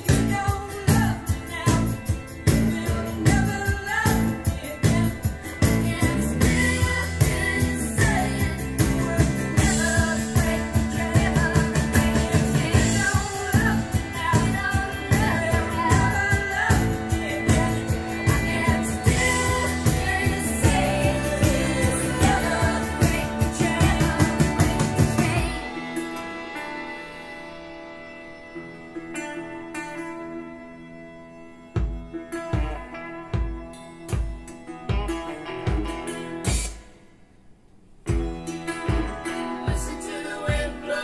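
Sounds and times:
song over loudspeakers: 0.0s - 28.8s, 38.1s - 41.0s.

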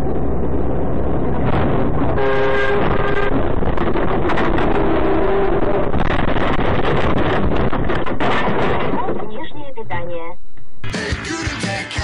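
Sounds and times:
road traffic noise: 0.0s - 9.8s
vehicle horn: 2.2s - 3.4s.

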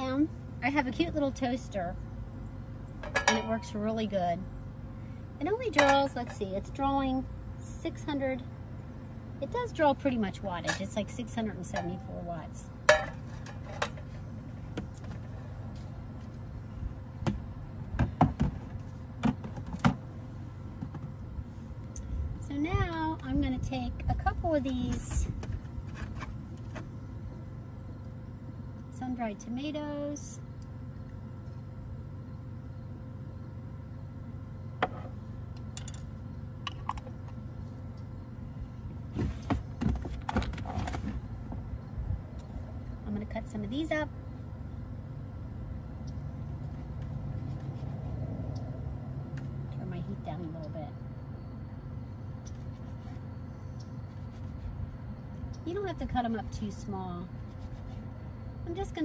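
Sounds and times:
steady low rumble: 0.0s - 19.2s, 20.0s - 59.0s
steady low hum: 0.0s - 59.0s
knocks and rustling: 39.1s - 41.6s.

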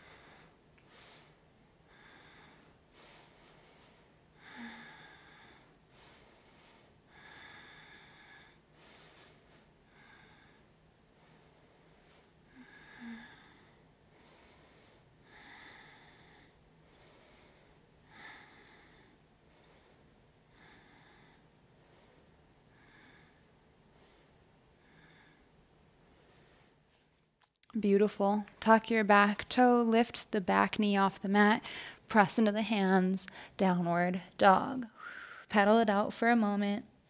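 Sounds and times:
slow breathing through nose: 0.0s - 26.9s.

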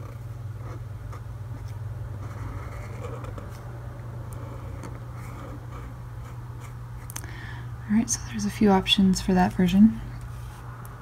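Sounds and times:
marker scratching on paper: 0.0s - 3.6s
low electrical hum: 0.0s - 11.0s.

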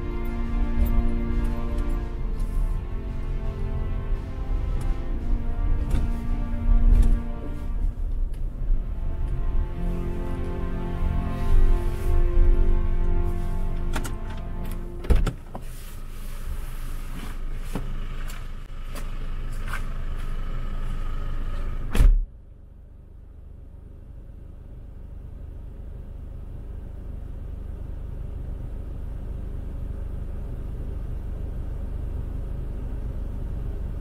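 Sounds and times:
car driving rumble: 0.0s - 34.0s.

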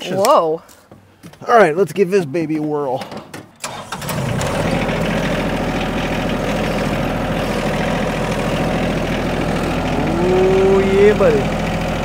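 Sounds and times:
diesel engine idling: 3.7s - 12.0s.

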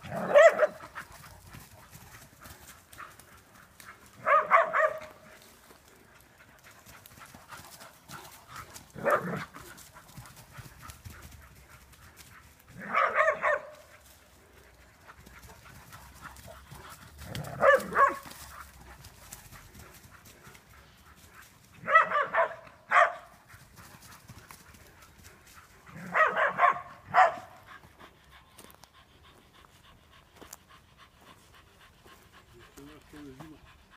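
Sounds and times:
dog barking: 0.1s - 0.9s, 4.2s - 5.3s, 9.0s - 9.5s, 12.8s - 14.0s, 17.4s - 18.4s, 21.8s - 23.4s, 25.9s - 27.6s.

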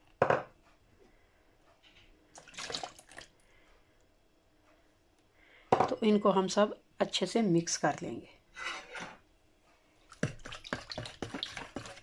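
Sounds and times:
butter splashing into bowl: 10.1s - 12.0s.

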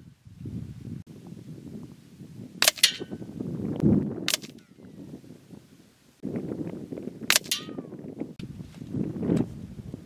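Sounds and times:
wind rumbling on microphone: 0.0s - 10.0s
air rifle shots cracking: 2.6s - 3.1s, 4.3s - 4.6s, 7.3s - 7.9s.

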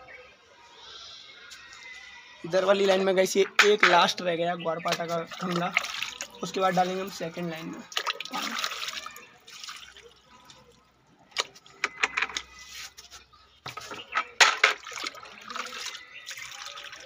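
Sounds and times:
mug knocking and splashing: 3.4s - 4.2s, 13.7s - 16.6s
water pouring onto soil: 4.9s - 11.7s, 14.7s - 17.0s.

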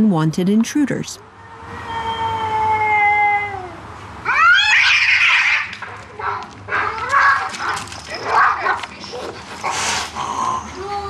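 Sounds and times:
cat yowling: 1.2s - 9.3s
cats screeching in a fight: 1.3s - 11.0s.

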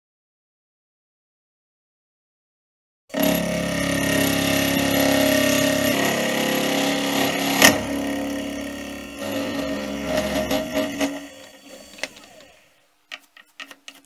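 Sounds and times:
milling machine cutting metal: 3.1s - 12.7s.

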